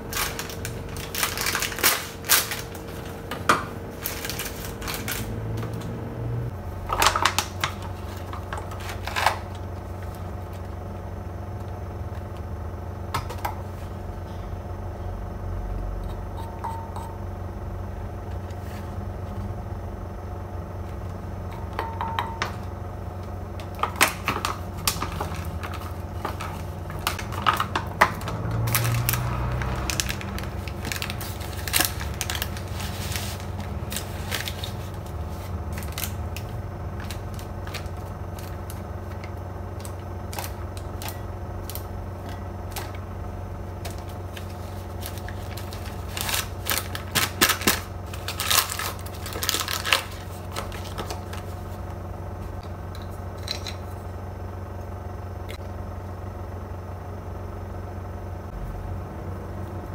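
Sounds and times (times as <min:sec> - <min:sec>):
packets and cardboard box handled: 0:00.0 - 0:05.2, 0:23.7 - 0:43.0, 0:43.8 - 0:51.8
steady low hum: 0:00.0 - 0:59.9.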